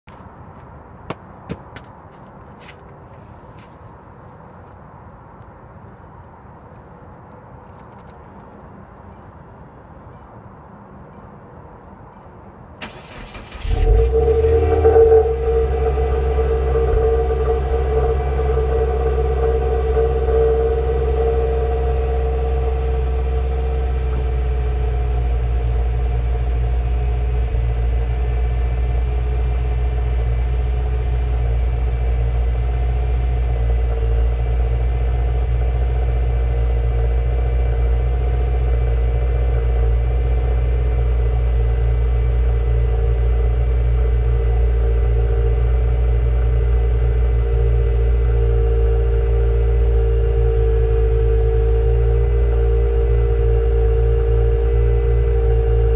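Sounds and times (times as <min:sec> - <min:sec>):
car engine idling: 0:12.8 - 0:55.9.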